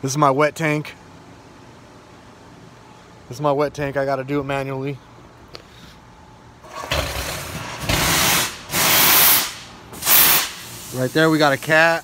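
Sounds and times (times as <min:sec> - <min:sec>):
air and water blasts: 0:07.8 - 0:11.0
compressed air hissing: 0:07.8 - 0:12.0.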